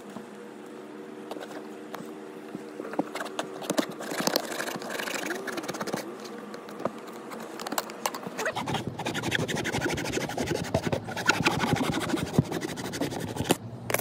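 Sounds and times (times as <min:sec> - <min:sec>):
hacksaw sawing plastic pipe: 0:08.4 - 0:13.6.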